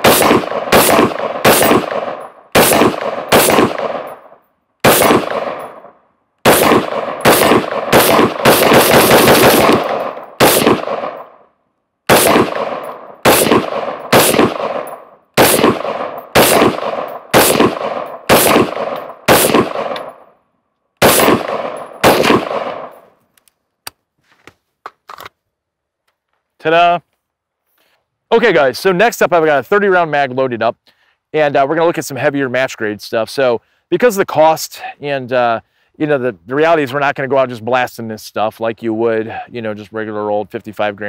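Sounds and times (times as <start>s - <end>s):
rifle gunshots: 0.0s - 11.4s, 12.1s - 20.2s, 21.0s - 23.0s.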